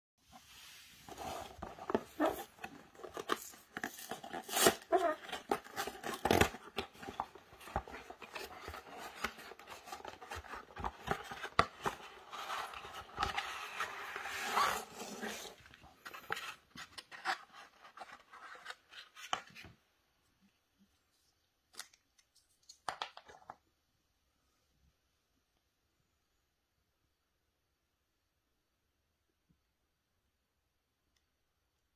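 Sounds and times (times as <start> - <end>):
packaging rustling and tearing: 1.1 - 19.4.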